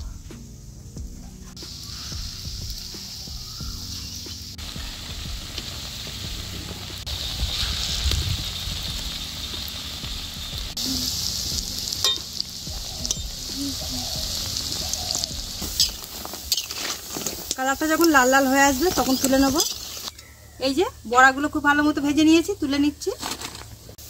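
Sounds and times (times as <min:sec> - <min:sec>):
batter deep-frying in oil: 0:01.6 - 0:24.0.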